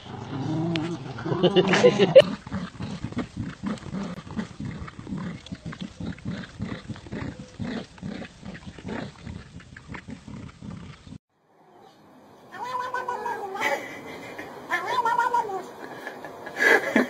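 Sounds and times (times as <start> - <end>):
dogs growling: 0.0 - 11.2.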